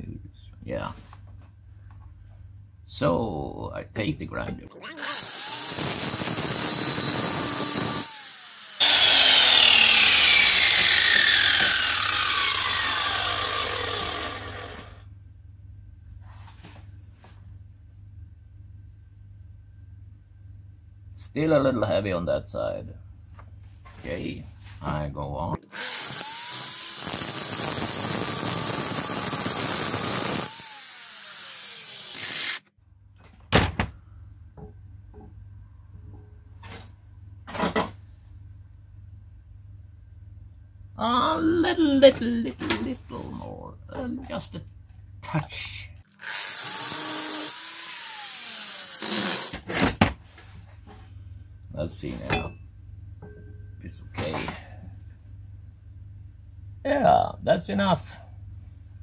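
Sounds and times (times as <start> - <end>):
angle grinder grinding steel: 4.8 - 15.0, 25.6 - 32.7, 46.2 - 49.5
grinder disc winding down: 4.8 - 15.0, 25.7 - 32.6.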